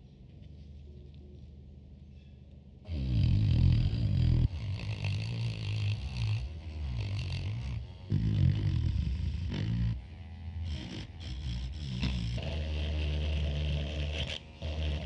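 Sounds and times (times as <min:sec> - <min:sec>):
rotary wire brush scrubbing metal: 0:04.4 - 0:15.0.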